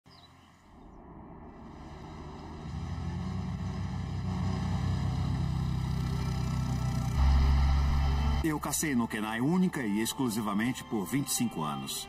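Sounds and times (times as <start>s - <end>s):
utility vehicle engine running: 0.2s - 8.4s.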